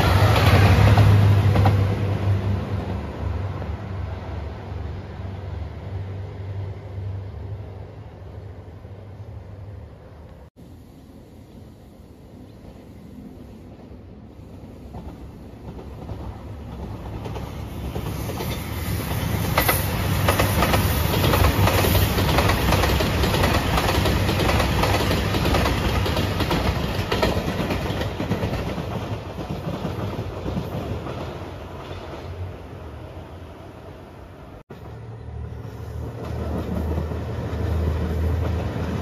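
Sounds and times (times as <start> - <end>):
diesel train passing: 0.0 - 39.0
wheels clacking over rail joints: 14.9 - 32.4.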